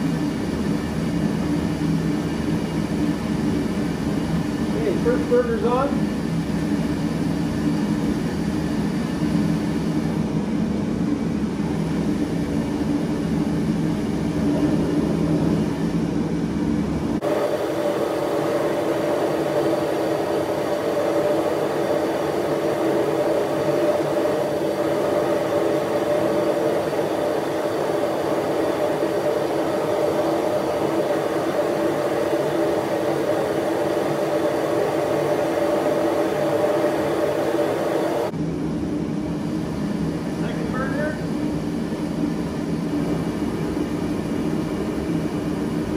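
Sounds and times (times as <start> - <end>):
blower fan whirring: 0.0 - 45.9
gas forge burning: 0.0 - 45.9.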